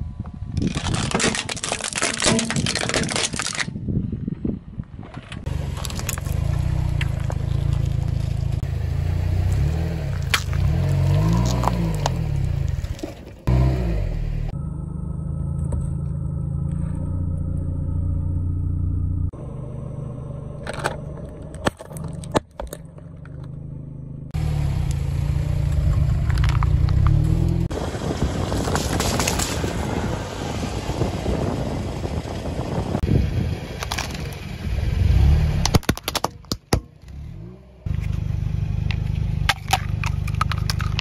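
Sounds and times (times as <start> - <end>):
plastic cup cracking and popping: 0.6 - 3.7, 10.2 - 12.2, 33.8 - 34.3, 35.6 - 36.8, 39.5 - 41.0
tyre crushing packaged food: 0.7 - 3.7, 39.5 - 41.0
car engine running: 5.4 - 28.2, 37.0 - 41.0.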